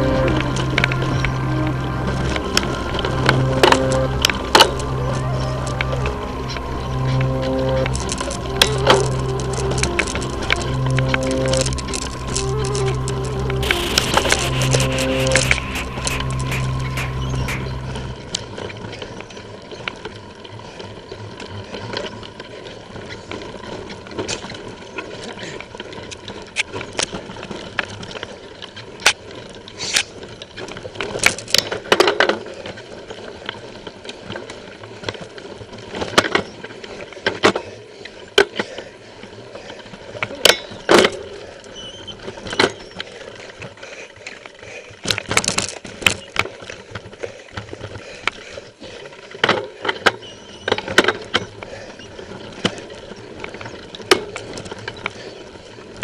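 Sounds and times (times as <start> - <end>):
mountain bike rattling: 18.1 - 56.0.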